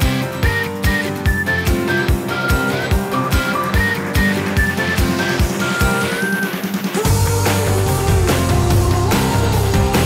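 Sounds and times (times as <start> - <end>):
music with steady beat: 0.0 - 10.0.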